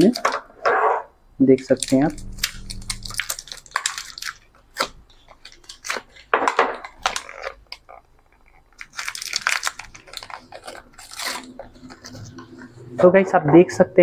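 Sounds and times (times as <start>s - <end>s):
packaging crinkling and tearing: 1.7s - 12.8s.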